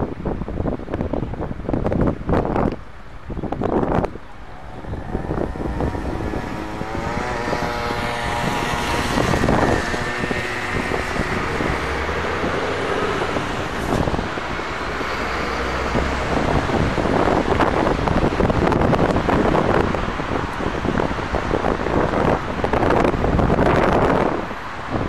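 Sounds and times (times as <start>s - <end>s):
wind buffeting microphone: 0.0s - 25.0s
vehicle passing with whine: 3.7s - 21.0s.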